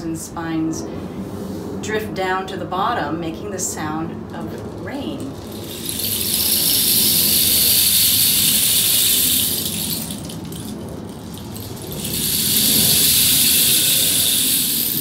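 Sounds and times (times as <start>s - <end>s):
rain stick rushing hiss: 4.4s - 15.0s.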